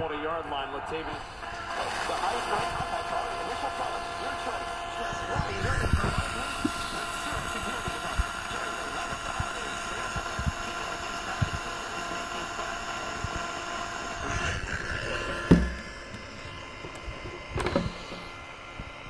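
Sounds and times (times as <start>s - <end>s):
electronic buzz: 0.9s - 19.0s
hiss: 1.1s - 13.4s
loud thump: 15.5s - 15.8s
device handling knocks: 15.5s - 16.2s, 17.6s - 18.2s.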